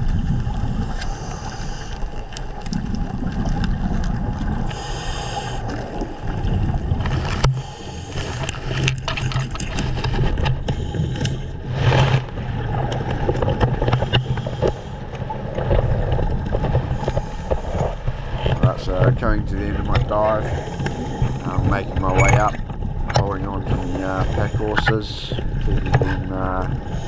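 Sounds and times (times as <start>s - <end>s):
muffled underwater rumble: 0.0s - 27.0s
clicks and scrapes: 7.0s - 14.9s.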